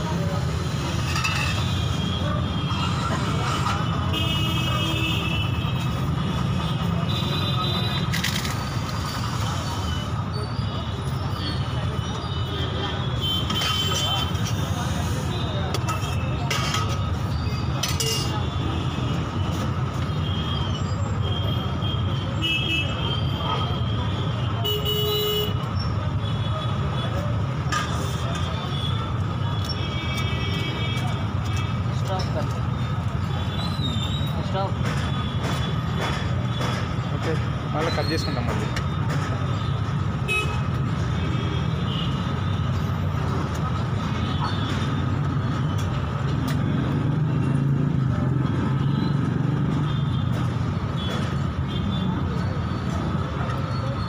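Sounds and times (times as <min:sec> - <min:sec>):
street traffic rumbling: 0:00.0 - 0:54.0
vehicle horns tooting: 0:40.2 - 0:42.2.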